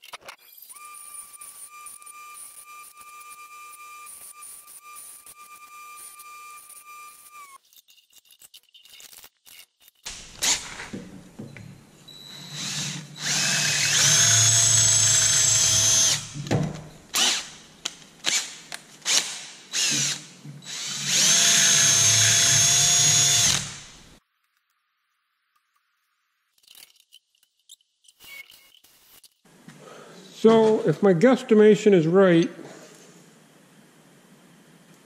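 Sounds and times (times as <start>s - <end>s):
cordless drill whining: 0.5s - 7.6s, 10.1s - 17.6s, 18.2s - 24.2s
drill trigger blips: 10.1s - 17.6s, 19.1s - 24.2s.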